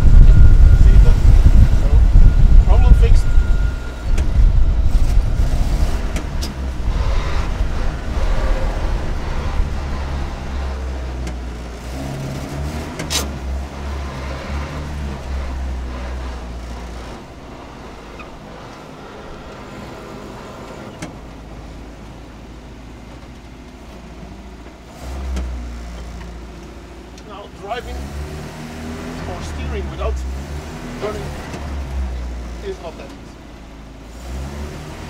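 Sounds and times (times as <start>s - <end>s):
truck engine running: 0.0s - 35.0s
sharp click: 13.0s - 13.4s.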